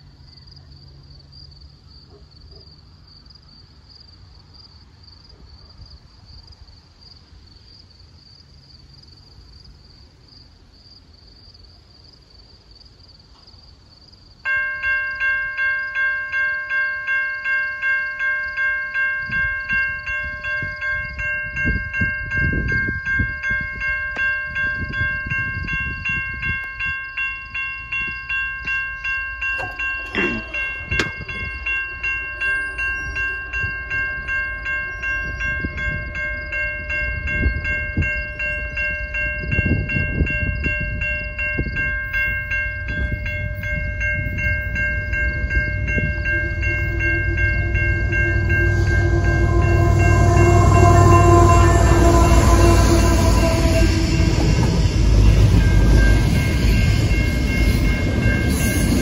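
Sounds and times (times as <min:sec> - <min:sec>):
level-crossing warning bell ringing: 0:14.4 - 0:59.0
low rumbles: 0:42.5 - 0:59.0
steady high hum: 0:45.0 - 0:56.4.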